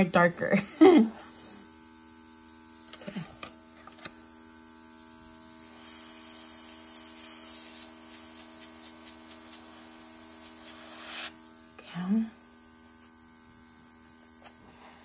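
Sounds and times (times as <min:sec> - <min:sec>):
air compressor humming: 0:00.7 - 0:15.0
airbrush air hiss: 0:05.2 - 0:11.4.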